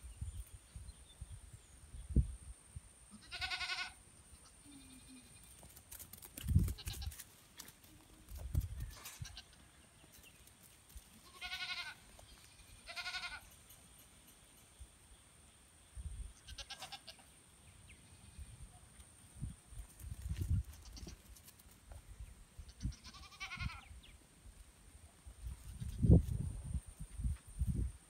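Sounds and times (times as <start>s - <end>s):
goat kids bleating: 3.1s - 5.4s, 11.2s - 13.5s, 16.4s - 17.3s, 22.7s - 23.9s.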